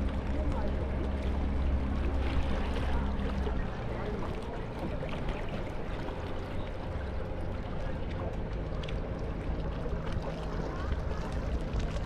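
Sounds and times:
boat motor droning: 0.0 - 12.0
water washing along hull: 0.0 - 12.0.

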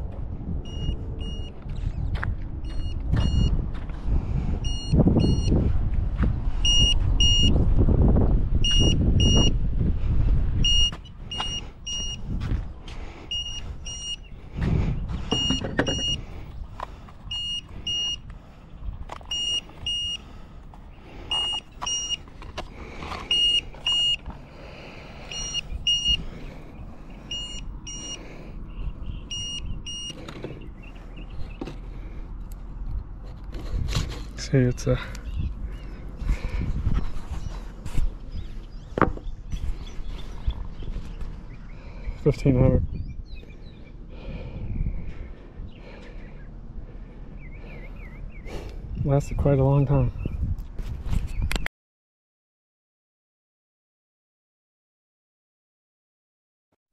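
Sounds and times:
wind rumble on microphone: 0.0 - 51.7
electronic alarm double beeps: 0.6 - 1.6, 2.6 - 3.6, 4.6 - 5.6, 6.6 - 7.6, 8.6 - 9.6, 10.6 - 12.2, 13.3 - 14.4, 15.2 - 16.2, 17.3 - 18.2, 19.3 - 20.3, 21.3 - 22.2, 23.2 - 24.2, 25.3 - 26.4, 27.2 - 30.2
handling clicks and rustles: 15.2 - 28.2.

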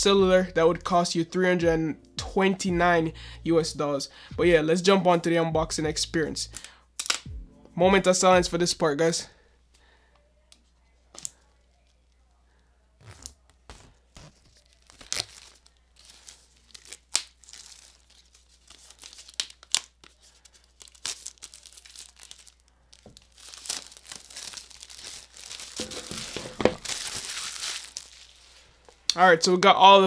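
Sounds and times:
plastic wrap tearing and crackling: 13.0 - 28.6
plastic crinkling: 13.0 - 29.1.

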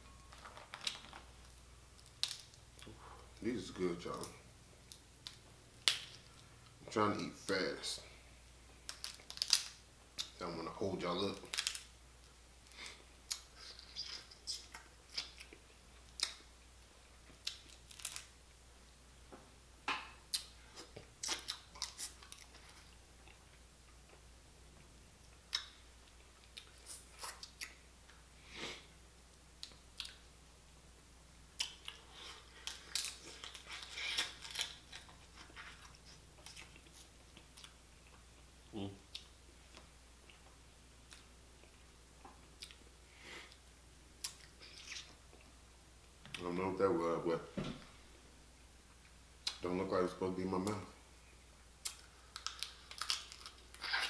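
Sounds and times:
crab shells crackling: 0.3 - 2.7, 4.2 - 6.4, 8.9 - 9.8, 11.3 - 11.9, 17.5 - 18.3, 51.9 - 54.0.

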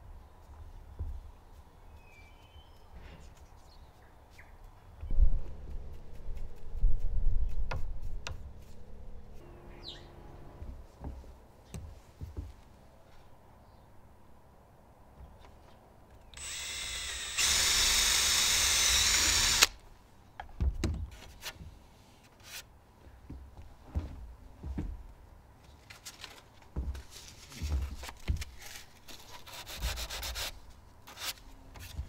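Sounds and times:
cordless drill boring into wood: 16.4 - 19.8.

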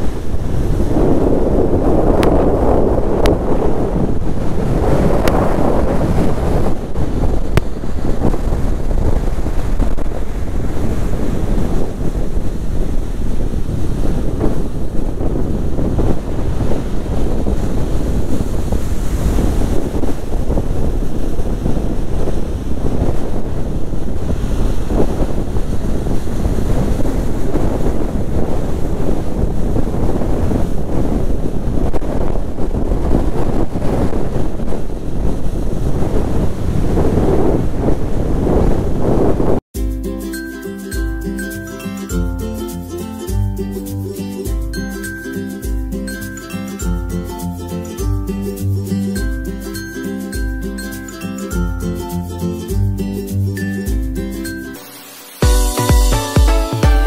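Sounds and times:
storm surf breaking: 0.0 - 39.6, 40.4 - 57.0
wind buffeting microphone: 0.0 - 39.6.

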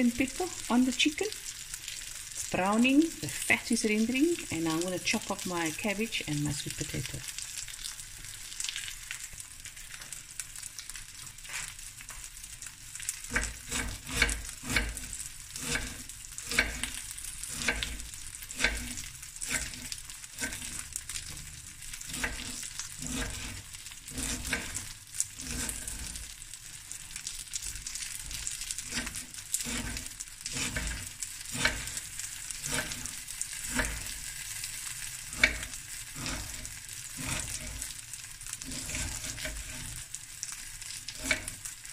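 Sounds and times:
chicken sizzling in a pan: 0.0 - 41.9
knife chopping on wooden board: 13.3 - 18.0, 18.6 - 20.7, 22.1 - 24.8.

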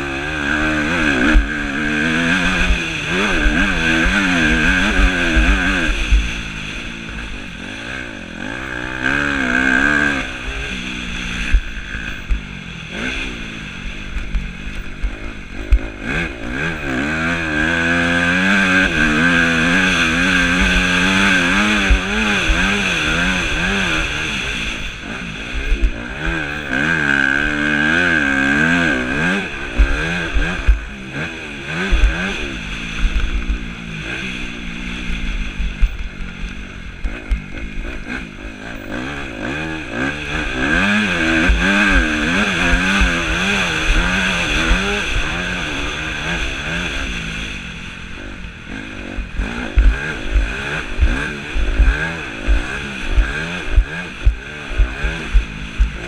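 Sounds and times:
motocross engine revving: 0.0 - 56.0
sharp low thumps: 49.2 - 56.0.

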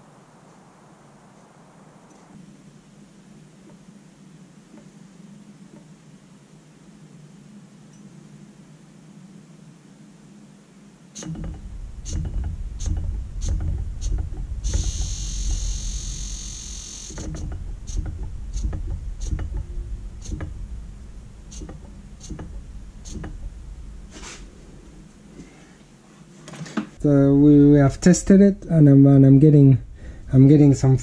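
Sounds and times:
hiss: 11.2 - 19.6, 24.0 - 24.6
fuel pump motor humming: 11.2 - 24.2.

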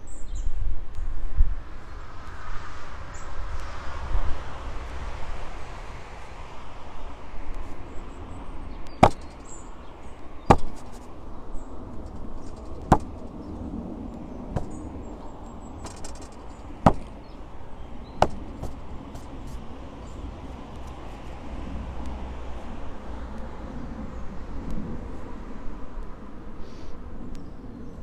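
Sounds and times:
sharp taps or knocks: 9.0 - 9.4, 10.5 - 11.1, 12.1 - 13.4, 14.5 - 14.8, 15.8 - 17.2, 18.2 - 19.6.

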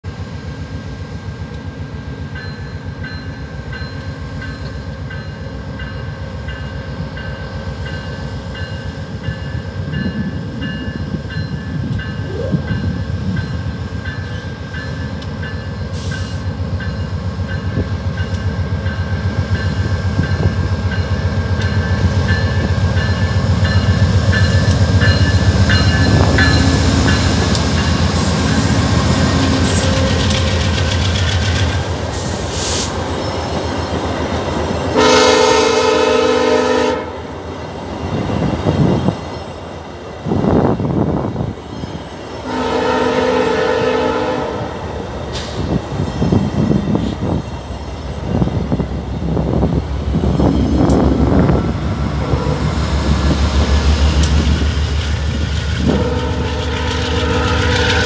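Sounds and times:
diesel locomotive engine working hard: 0.0 - 58.0.

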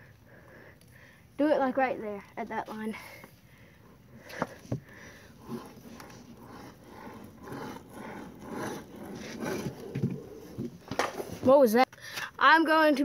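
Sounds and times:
wheels rolling on concrete: 2.4 - 11.8.

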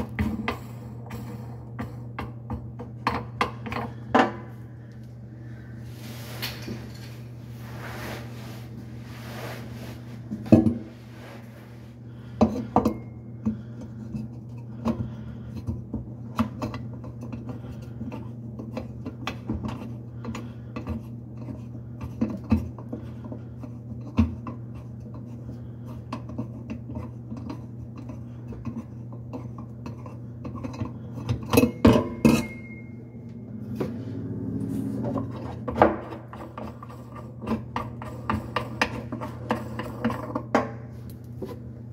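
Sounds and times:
low hum: 0.0 - 15.4, 29.6 - 39.1.

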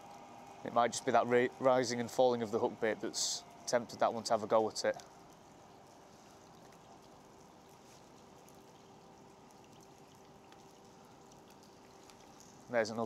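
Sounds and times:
light rain on river: 0.0 - 13.0.

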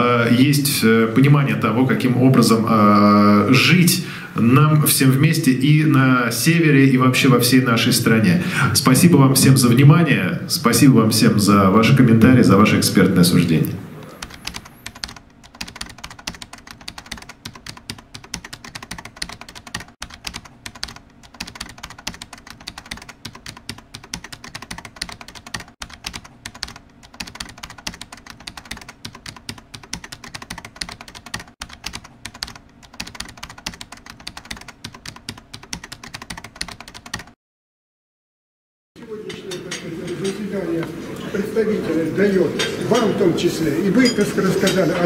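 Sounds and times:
keyboard typing: 14.0 - 37.4.

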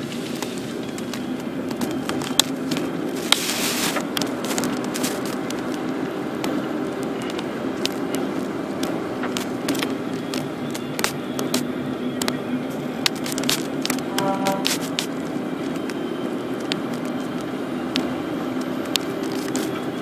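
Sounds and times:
car interior engine hum: 0.0 - 20.0
short rush of noise: 14.0 - 15.1.

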